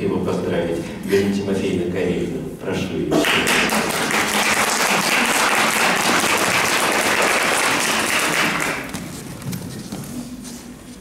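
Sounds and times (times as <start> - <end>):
audience applauding: 3.2 - 9.2.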